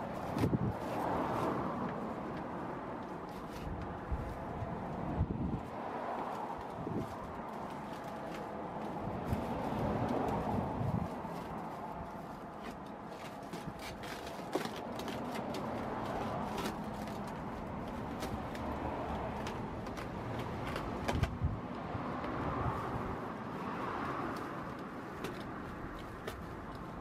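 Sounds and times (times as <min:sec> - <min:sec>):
outdoor background noise: 0:00.0 - 0:27.0
small clicks and rustles: 0:06.1 - 0:21.5.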